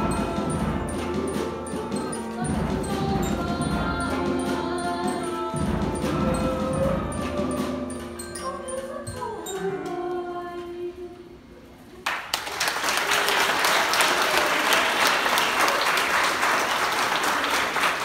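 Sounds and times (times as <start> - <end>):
girls singing into microphones: 2.2 - 11.4
audience applause: 12.0 - 18.0.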